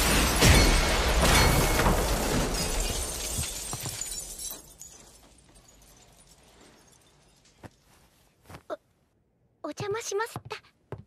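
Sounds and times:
crash and shattering: 0.0s - 7.7s
falling debris clinks: 0.0s - 8.0s.

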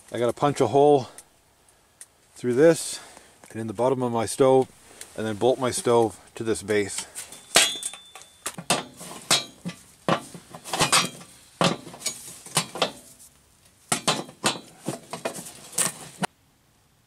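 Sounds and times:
wrench clinking on metal: 7.3s - 13.0s.

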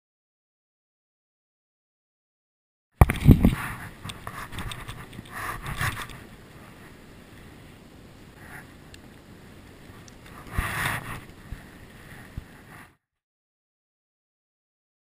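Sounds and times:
wind rumbling on microphone: 3.0s - 12.9s
rustling rush: 3.0s - 13.0s.

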